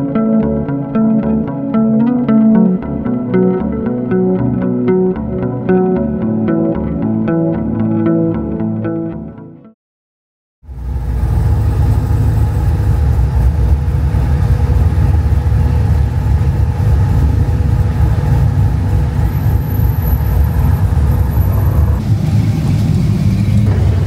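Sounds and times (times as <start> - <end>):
truck engine rumbling: 10.7 - 24.0.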